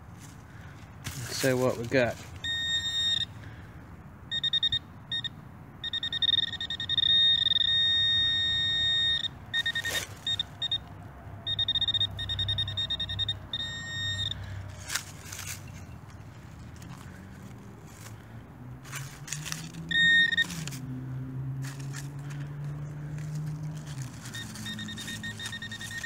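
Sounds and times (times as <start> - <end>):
metal detector pinpointer beeping: 2.4 - 3.3, 4.3 - 16.1, 19.6 - 20.8, 23.6 - 26.0.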